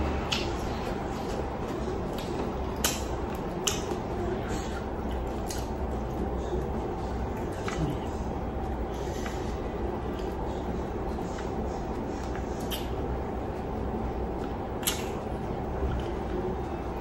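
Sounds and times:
steady low hum: 0.0s - 17.0s
person chewing: 0.2s - 10.4s, 12.2s - 13.6s, 14.3s - 16.5s.

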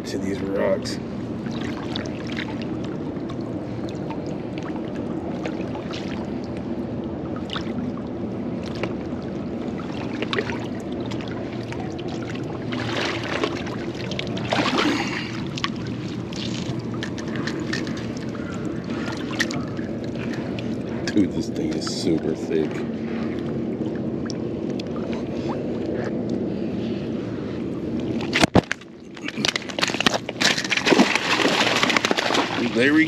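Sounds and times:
small splashes: 1.4s - 6.6s, 7.3s - 26.1s, 28.1s - 33.0s
shallow water lapping against rocks: 7.4s - 26.7s, 28.1s - 33.0s
loud splashing of fish: 12.2s - 15.6s, 29.2s - 33.0s.

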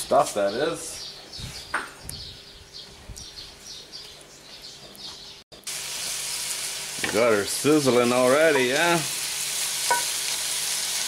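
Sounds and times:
small birds chirping: 0.0s - 5.7s
meat sizzling in a skillet: 5.6s - 11.0s.

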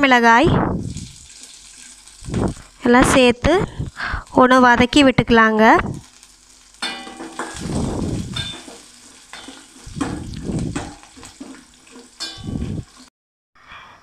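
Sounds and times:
food frying in hot oil: 0.0s - 13.1s
spatula scraping a pan: 6.1s - 13.1s.

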